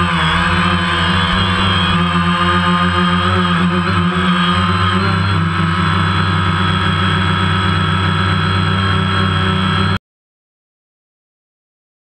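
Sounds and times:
drone motors humming and whining: 0.0 - 10.0.

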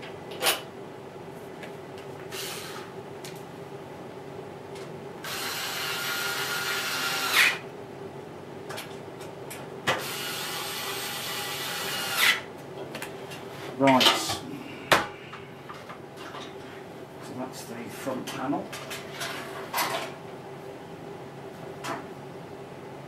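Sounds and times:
cordless drill driving screws: 5.3 - 7.6, 11.6 - 12.4.

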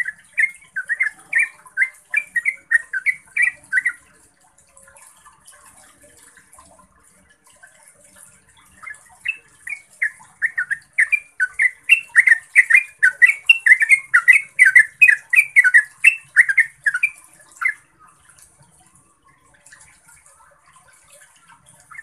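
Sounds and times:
bird singing quick rolling song: 8.8 - 17.8.

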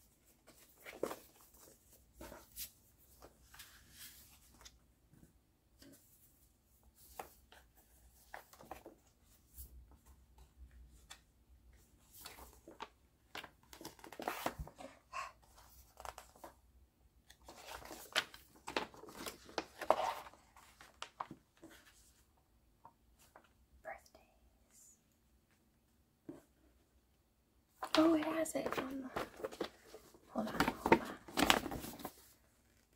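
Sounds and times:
paper rustling and crinkling: 0.2 - 4.8, 12.0 - 16.6, 17.3 - 22.2, 27.8 - 32.9.

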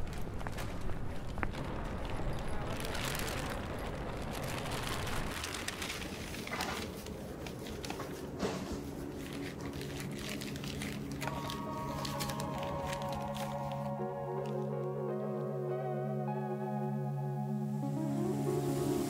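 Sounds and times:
plastic bag and paper rustling: 0.0 - 14.8
soft music: 6.8 - 19.0.

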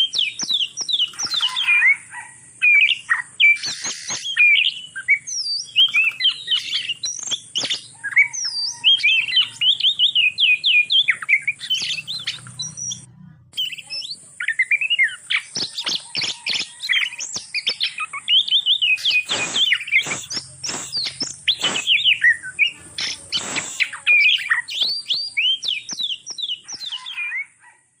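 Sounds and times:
birds singing whistled notes: 0.0 - 28.0
short sharp clicks: 18.8 - 22.2.

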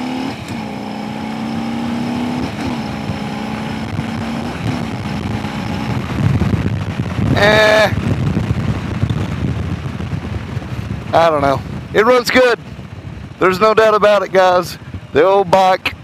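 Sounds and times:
motorcycle engine accelerating: 0.0 - 11.9
wind rush: 0.0 - 16.0.

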